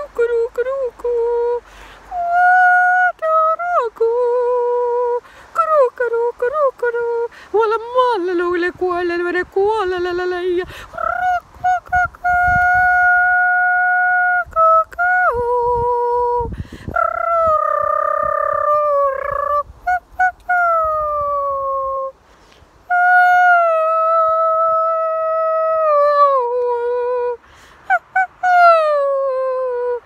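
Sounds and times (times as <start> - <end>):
woman singing wordless high notes: 0.0 - 22.2, 22.9 - 30.0
singer breathing: 1.6 - 2.1, 5.2 - 5.5, 7.3 - 7.6, 10.6 - 11.0, 16.5 - 17.0, 22.2 - 22.8, 27.4 - 27.9.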